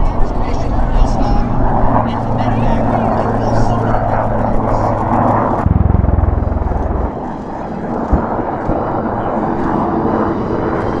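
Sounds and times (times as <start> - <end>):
helicopter turbine: 0.0 - 11.0
helicopter rotor thumping: 5.0 - 8.3.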